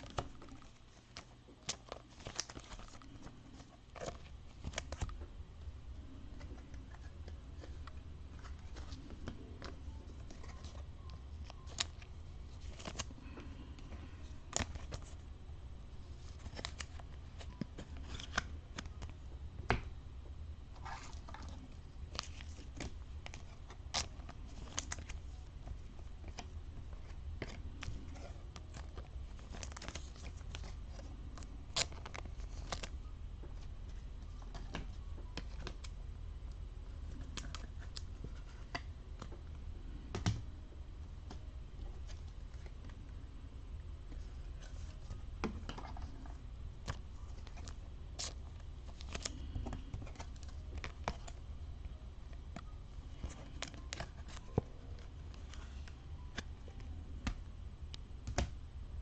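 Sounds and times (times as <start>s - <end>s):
plastic sleeves crinkling: 0.0s - 5.3s, 6.0s - 15.2s, 16.0s - 19.2s, 20.8s - 35.9s, 44.1s - 57.4s
steady low hum: 0.0s - 59.0s.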